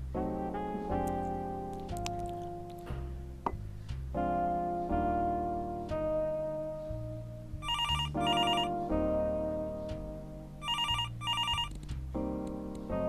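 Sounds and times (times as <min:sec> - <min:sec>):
slow background music: 0:00.0 - 0:13.0
telephone ringing: 0:07.6 - 0:08.7, 0:10.6 - 0:11.7.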